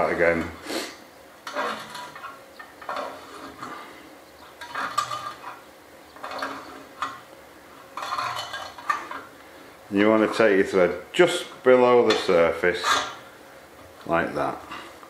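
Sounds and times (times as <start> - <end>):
metallic scraping and clinking: 1.4 - 9.4, 10.0 - 13.4.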